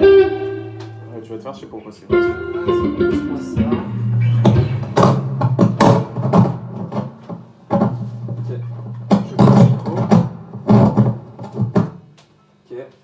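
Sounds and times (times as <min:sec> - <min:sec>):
guitar amplifier hum: 0:00.0 - 0:13.0
guitars knocking and bumping: 0:02.1 - 0:12.2.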